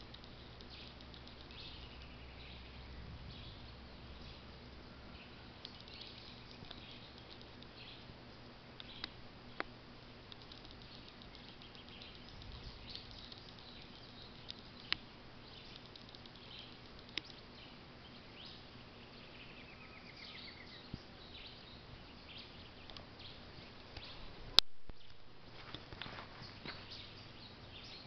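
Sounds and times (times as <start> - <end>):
sharp clicks: 0.0 - 2.2, 5.6 - 7.9, 10.3 - 15.0, 15.6 - 17.4, 22.8 - 23.1
birds calling and chirping: 0.0 - 28.0
insects: 0.0 - 28.0.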